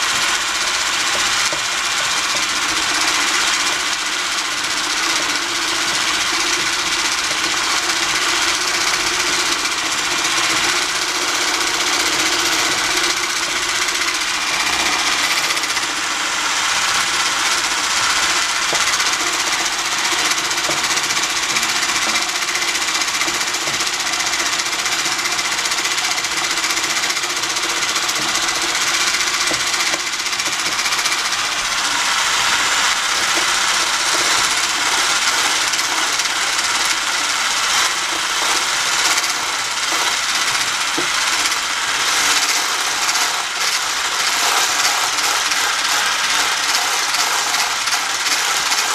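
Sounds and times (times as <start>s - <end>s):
stick blender motor running: 0.0s - 48.9s.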